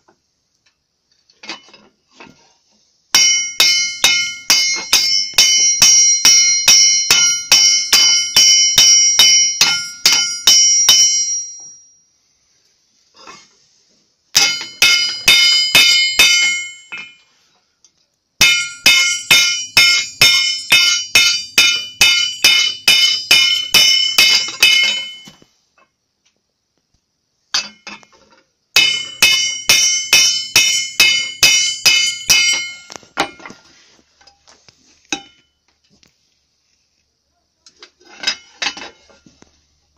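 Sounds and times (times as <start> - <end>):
hammer striking metal on anvil: 3.1 - 11.8, 14.3 - 17.2, 18.4 - 25.4, 28.8 - 33.6, 35.1 - 35.5
anvil ringing: 3.2 - 11.9, 14.4 - 17.2, 18.4 - 25.4, 28.8 - 33.5.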